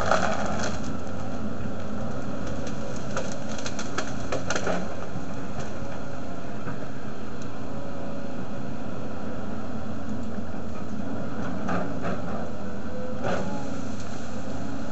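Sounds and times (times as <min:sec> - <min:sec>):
tree snapping and cracking: 0:00.0 - 0:01.2, 0:02.2 - 0:05.7
excavator diesel engine running: 0:00.0 - 0:14.9.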